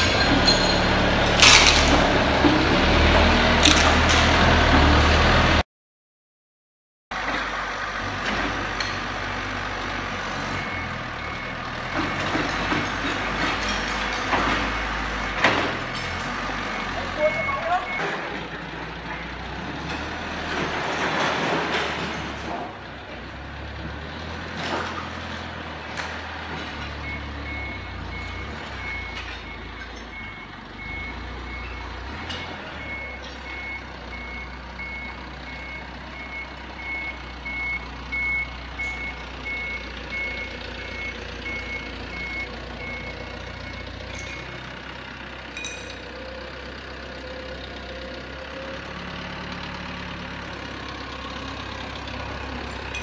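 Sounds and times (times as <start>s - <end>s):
forklift engine running: 0.0s - 5.6s, 7.2s - 53.0s
reversing alarm beeps: 10.5s - 12.3s, 16.7s - 18.2s, 27.0s - 44.6s.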